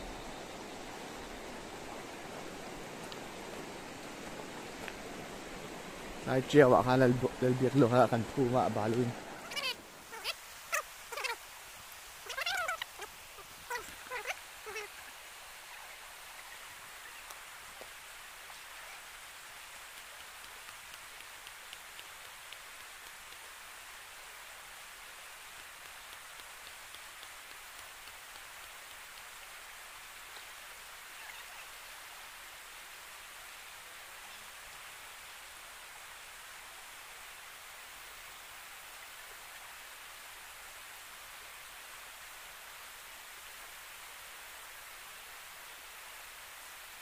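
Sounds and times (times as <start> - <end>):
faint ticks and patters: 0.1 - 47.0.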